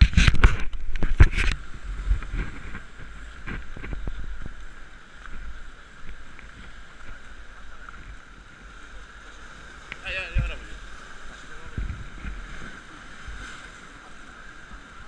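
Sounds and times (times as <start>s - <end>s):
wind buffeting microphone: 0.0s - 13.7s
waves breaking on rocks: 0.0s - 15.0s.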